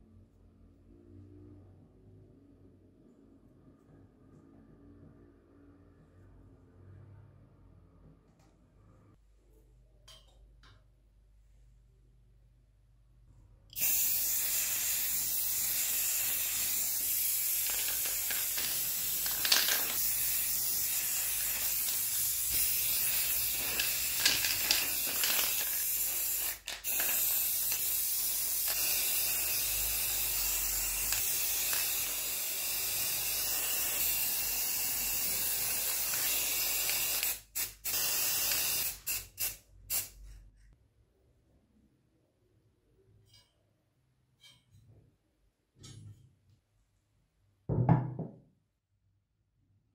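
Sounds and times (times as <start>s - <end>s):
spray paint can hissing: 13.8s - 40.2s.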